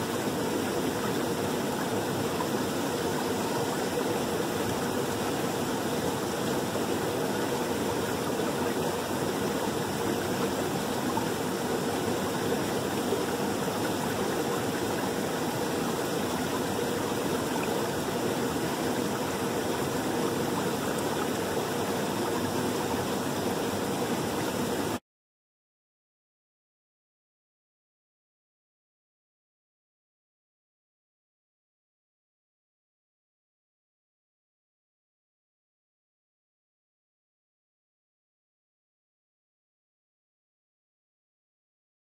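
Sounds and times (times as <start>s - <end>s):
creek water rushing over stones: 0.0s - 25.0s.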